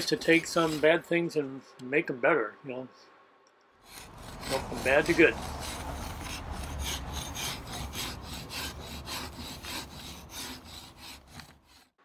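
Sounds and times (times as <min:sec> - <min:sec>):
scraper rasping on wood: 0:00.0 - 0:00.9, 0:03.8 - 0:12.0.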